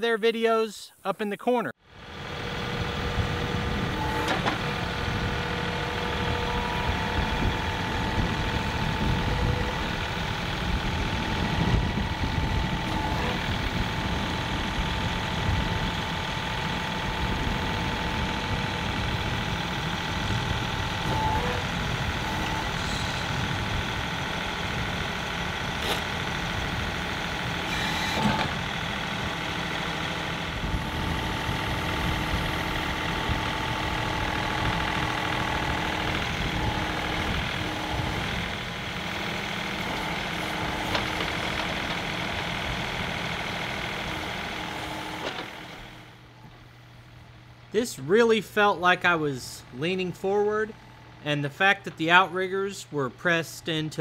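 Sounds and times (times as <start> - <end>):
diesel tractor engine running: 1.9 - 54.0
steady whine: 2.0 - 29.3, 30.4 - 54.0.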